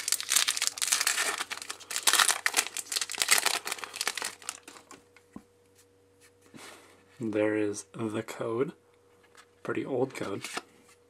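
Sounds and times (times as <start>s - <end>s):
foil wrapper crinkling: 0.0s - 5.0s.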